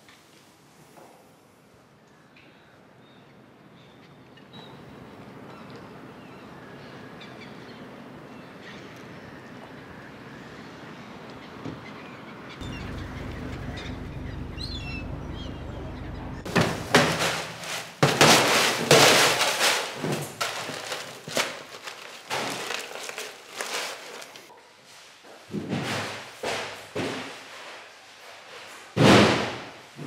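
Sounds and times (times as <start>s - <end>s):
gull calls: 12.6s - 16.5s
low steady rumble: 12.6s - 16.9s
fish and boxes thumping and clattering: 16.5s - 24.4s, 25.5s - 27.5s.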